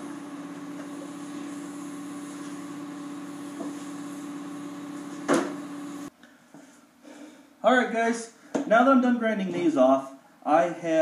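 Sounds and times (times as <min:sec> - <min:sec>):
angle grinder running: 0:00.0 - 0:06.1.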